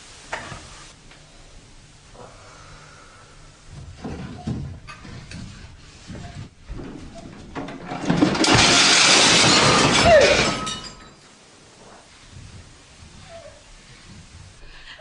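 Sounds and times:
household things knocking and rattling: 3.7 - 14.7
crashing and shattering: 6.8 - 11.4.

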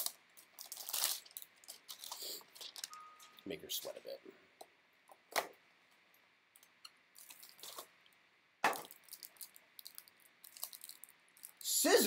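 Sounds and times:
packaging crackling: 0.0 - 3.0, 7.2 - 7.9, 8.7 - 11.8.

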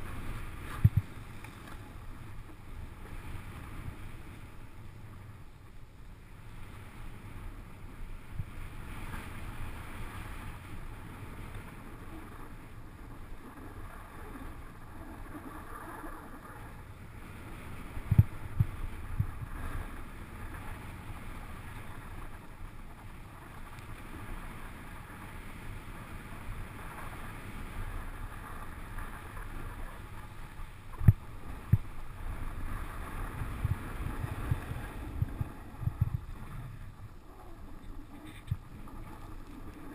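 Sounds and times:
wind rumble on microphone: 0.0 - 39.9
dull low thumps: 33.4 - 36.9.

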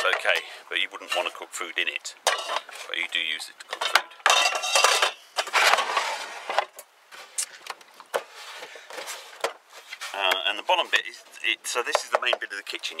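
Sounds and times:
pans clattering and scraping: 0.0 - 1.4, 2.2 - 3.0, 3.6 - 7.4, 8.1 - 10.4
light knocks and handling: 7.6 - 12.6.

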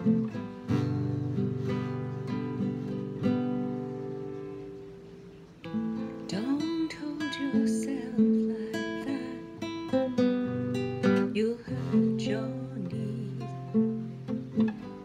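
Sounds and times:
acoustic guitar strumming: 0.0 - 15.0
woman singing: 6.2 - 10.2, 11.0 - 14.3.

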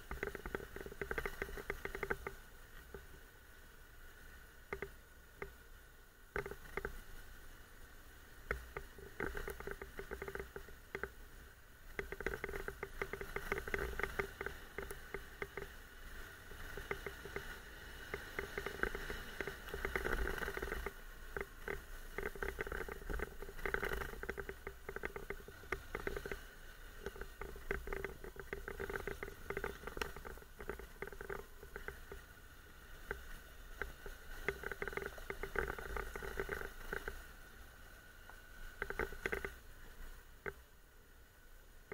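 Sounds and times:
camera rattling and clicking: 0.0 - 3.1, 6.4 - 7.0, 8.5 - 11.1, 11.9 - 15.8, 16.6 - 17.5, 18.1 - 32.2, 33.0 - 37.2, 38.8 - 39.6.

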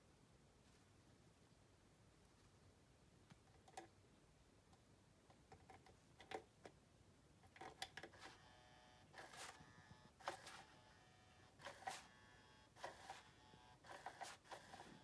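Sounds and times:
small motor whine: 8.2 - 15.0.

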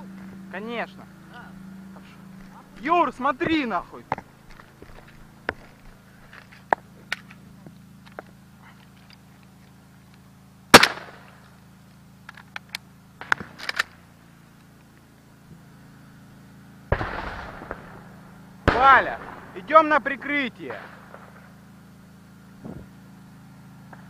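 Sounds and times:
faint gunfire cracks: 10.7 - 11.3, 16.9 - 19.6
loud gunshot with echo: 10.8 - 11.2, 16.9 - 18.1, 18.7 - 19.6.

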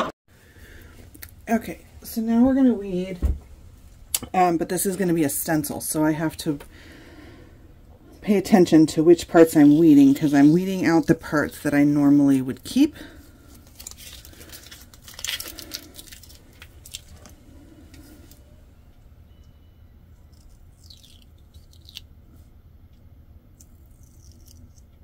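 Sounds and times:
stencil sheet rustling and crinkling: 13.4 - 18.4.

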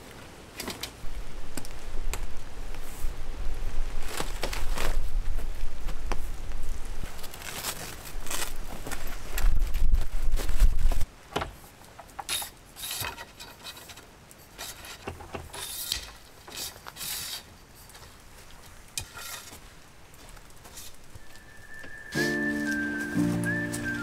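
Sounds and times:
fabric rustling: 3.8 - 6.1.

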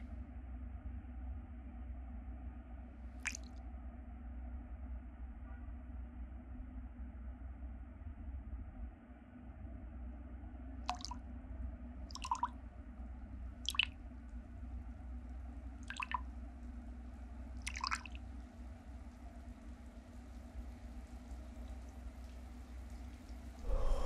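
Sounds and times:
water drips: 3.2 - 3.6, 10.9 - 11.2, 12.1 - 12.6, 13.6 - 14.4, 15.6 - 24.0
steady low drone: 23.6 - 24.0.

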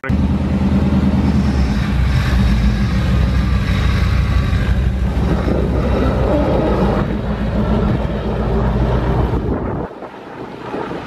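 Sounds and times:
pickup engine idling: 0.0 - 9.8.

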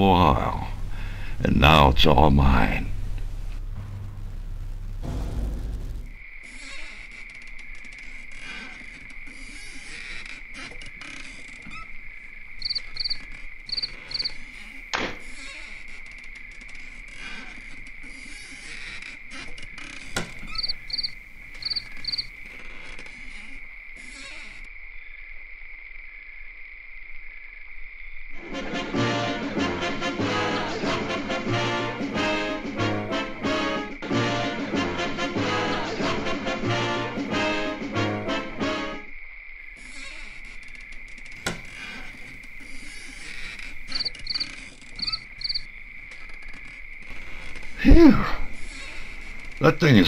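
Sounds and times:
sharp knock: 3.8 - 6.2
crickets chirring: 6.0 - 30.4, 31.0 - 50.0.

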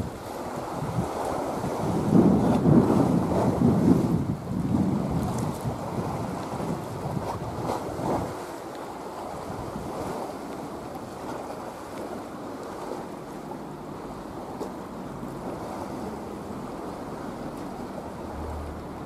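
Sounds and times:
wind buffeting microphone: 0.0 - 11.9
choppy sea water: 0.0 - 19.0
steady wind: 0.0 - 19.0.

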